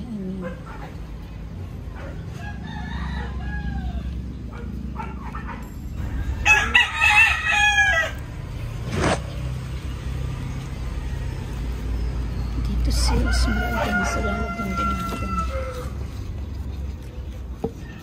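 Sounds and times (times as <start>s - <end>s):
rooster crowing: 2.3s - 4.4s, 6.0s - 8.4s, 13.0s - 16.2s.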